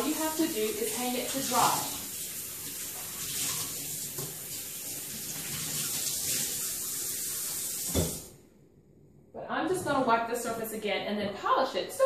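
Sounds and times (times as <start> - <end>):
cloth rinsed by hand: 0.0 - 8.3
faucet running: 0.0 - 8.4.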